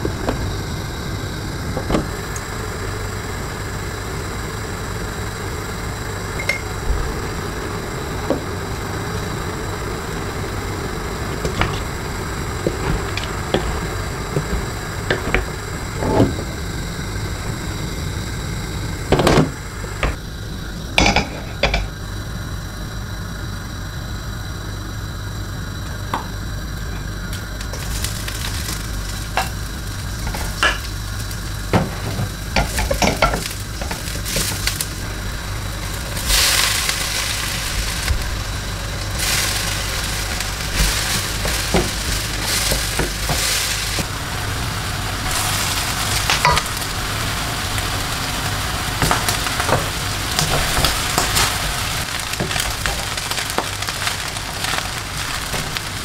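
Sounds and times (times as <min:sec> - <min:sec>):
food sizzling in a wok: 0:00.0 - 0:56.0.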